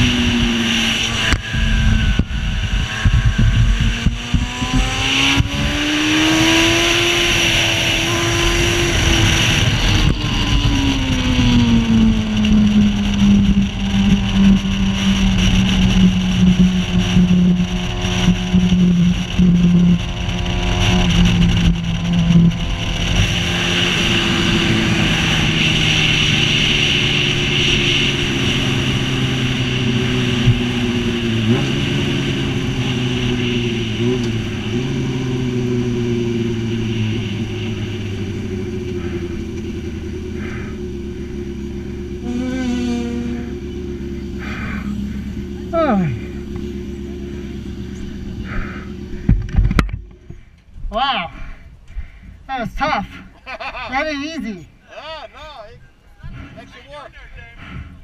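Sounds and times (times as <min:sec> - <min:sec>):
wind rushing on microphone: 0:00.0 - 0:39.5
racing sidecar engine: 0:00.0 - 0:58.0.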